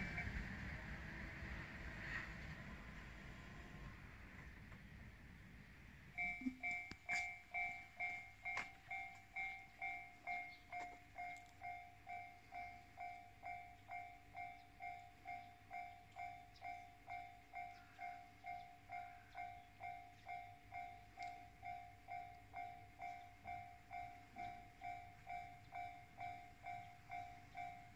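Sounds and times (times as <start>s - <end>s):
level crossing warning bell: 6.1s - 27.9s.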